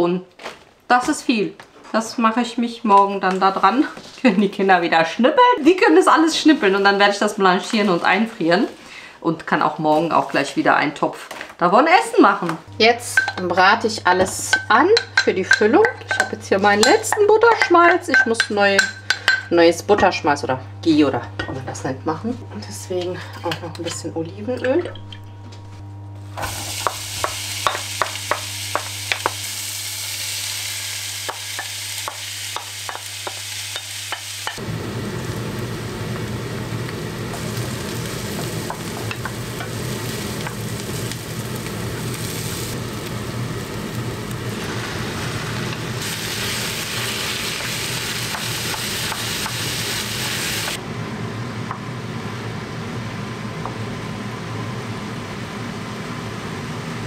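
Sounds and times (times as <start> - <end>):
spatula tapping pan: 13.2 - 19.5, 26.8 - 29.4
onions sizzling in pan: 26.3 - 50.8.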